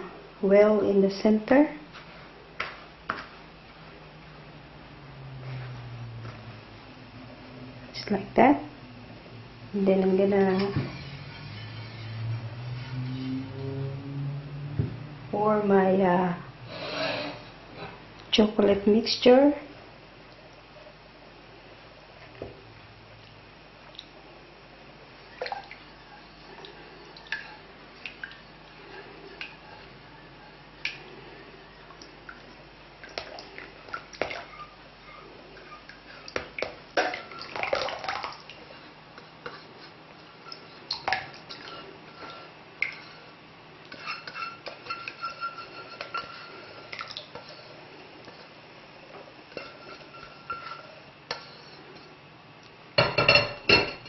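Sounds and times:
spatula scraping pan: 10.0s - 14.0s, 16.7s - 18.0s, 28.8s - 30.7s, 34.2s - 36.5s, 38.6s - 48.6s, 49.4s - 52.2s.

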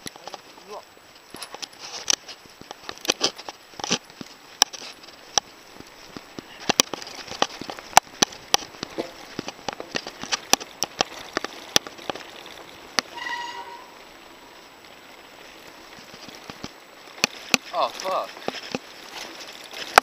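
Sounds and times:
bike knocks and rattles: 1.3s - 13.3s, 16.0s - 20.0s
short high squeak: 13.1s - 14.0s.

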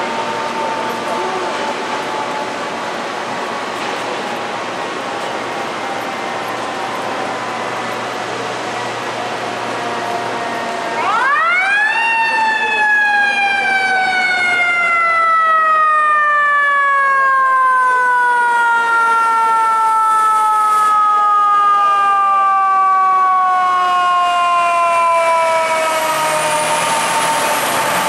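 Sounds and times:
truck engine rumble: 0.0s - 19.8s, 20.4s - 28.0s
road noise: 0.0s - 28.0s
mechanical siren winding down: 10.0s - 28.0s.

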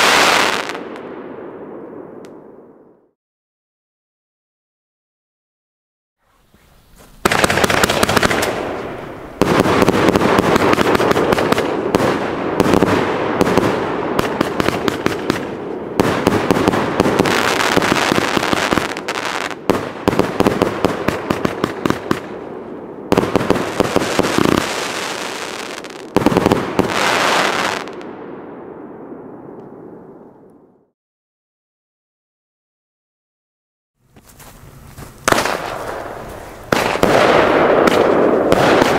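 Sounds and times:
firework cake crackling volleys: 14.3s - 22.3s.

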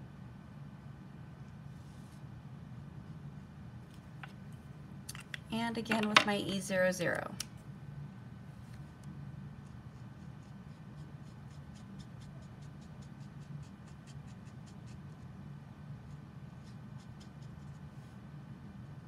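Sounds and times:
low steady hum: 0.0s - 19.0s
marker nib stroking on card: 9.6s - 15.4s, 16.0s - 17.9s.

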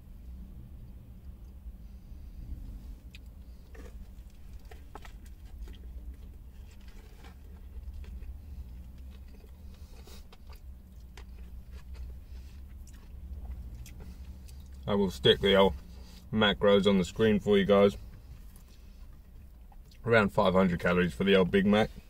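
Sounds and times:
low steady hum: 0.0s - 22.0s
person chewing with wet smacks: 2.9s - 14.9s, 18.1s - 20.1s.

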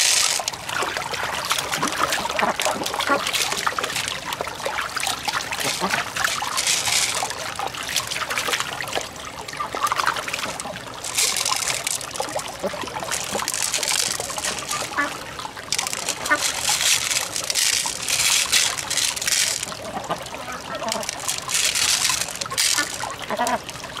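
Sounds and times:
small clicks of shell and beads: 0.0s - 0.6s, 2.7s - 4.3s, 5.6s - 8.1s, 10.4s - 12.4s, 13.1s - 15.0s, 15.7s - 19.8s, 20.9s - 23.1s
water trickling over rocks: 0.0s - 24.0s.

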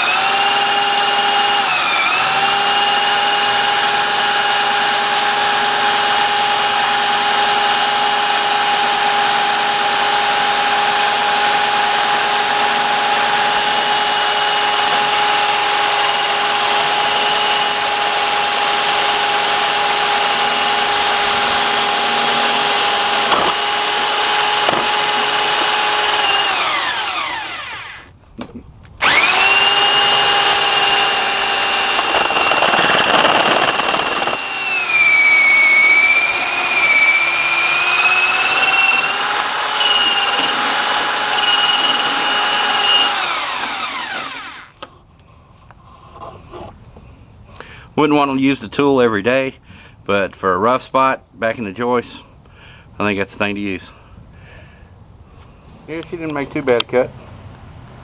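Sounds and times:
power drill running: 0.0s - 28.2s, 29.0s - 44.9s
blade scraping plastic pipe: 29.1s - 35.0s.

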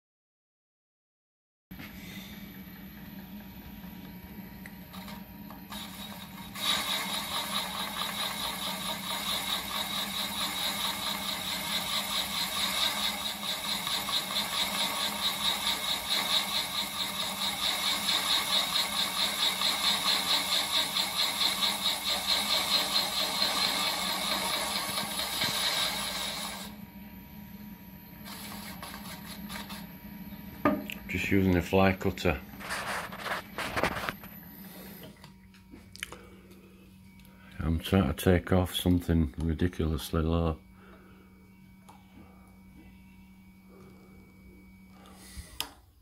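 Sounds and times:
milling spindle humming: 1.8s - 45.9s
metal cutting noise pulsing: 5.6s - 26.7s.

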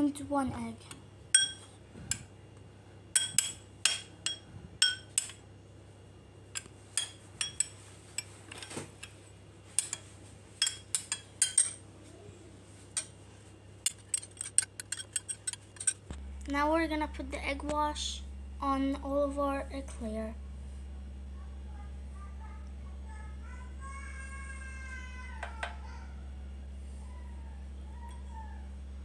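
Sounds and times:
metal spoon clinking glass bowl: 1.4s - 1.7s, 7.0s - 7.8s, 10.6s - 11.8s, 13.9s - 16.0s.

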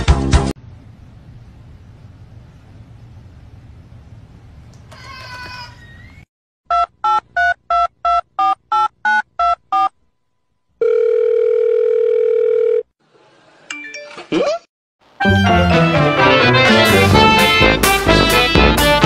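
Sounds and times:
telephone ringing tone: 10.8s - 12.9s.

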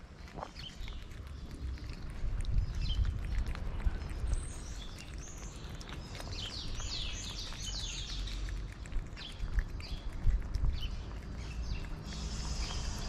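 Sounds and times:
cat chewing wet food: 0.0s - 13.0s
bird chirping: 0.1s - 13.0s.

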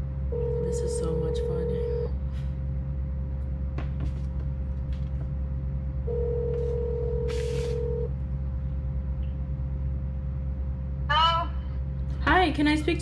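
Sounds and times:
steady low hum: 0.0s - 13.0s
telephone ringback tone: 6.1s - 8.1s.

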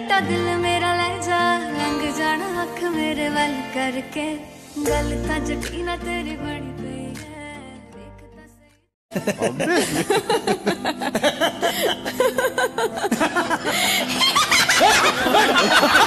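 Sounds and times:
hearty laughter: 9.2s - 16.0s.

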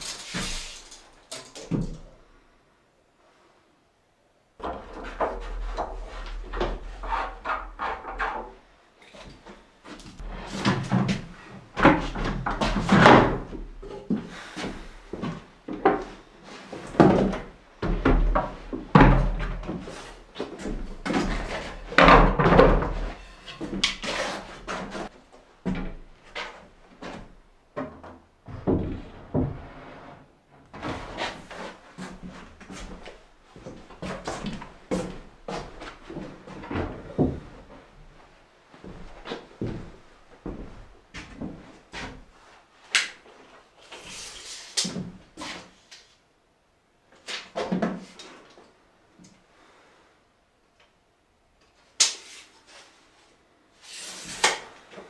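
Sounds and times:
wooden cabinets knocking and scraping: 10.2s - 14.0s, 15.3s - 26.1s, 27.0s - 31.4s, 33.8s - 37.7s.

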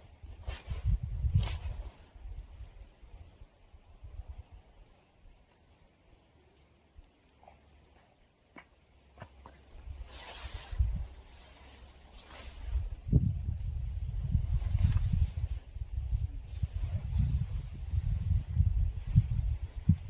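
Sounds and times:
wind buffeting microphone: 0.0s - 2.7s, 9.8s - 11.2s, 12.6s - 20.0s
high insect drone: 8.9s - 20.0s.

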